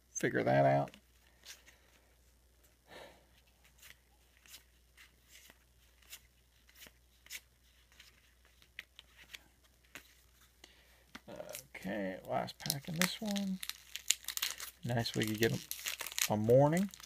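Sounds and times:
cardboard cards being flipped: 3.6s - 11.7s.

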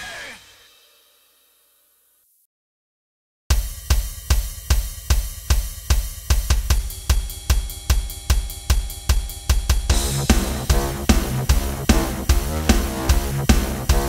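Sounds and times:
drum kit beat: 3.5s - 14.0s
metal band playing: 9.9s - 14.0s.

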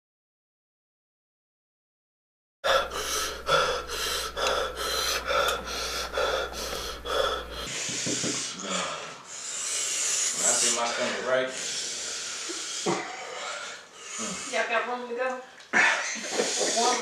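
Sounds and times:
low steady hum: 2.6s - 7.8s
person panting rapidly: 2.6s - 14.7s, 15.9s - 17.0s.

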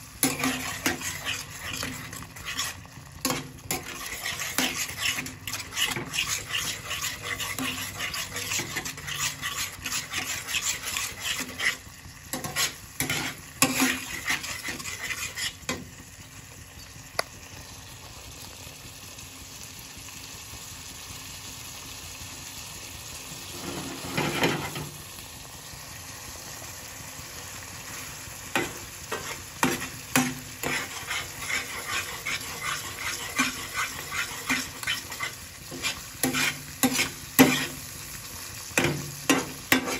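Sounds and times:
gravy sizzling and bubbling: 0.0s - 39.9s
metal spatula scraping frying pan: 0.2s - 15.9s, 23.5s - 25.0s, 27.9s - 38.0s, 38.8s - 39.9s.

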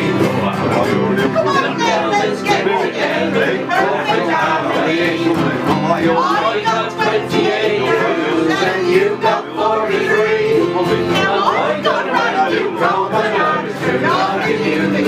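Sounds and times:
guitar: 0.0s - 15.0s
several voices singing: 0.0s - 15.0s
strummed ukulele: 0.0s - 15.0s.

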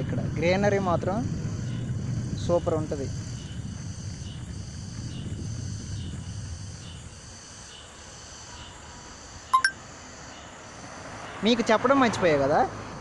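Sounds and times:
low rumble on microphone: 0.0s - 7.2s
insects chirping: 0.0s - 12.5s
short sharp chirp: 9.6s - 9.8s.

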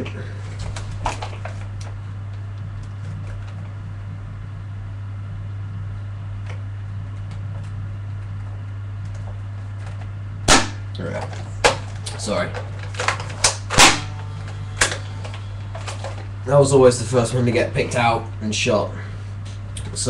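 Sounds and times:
low steady hum: 0.0s - 20.0s
loud sharp snap: 10.5s - 11.0s, 13.4s - 14.2s.

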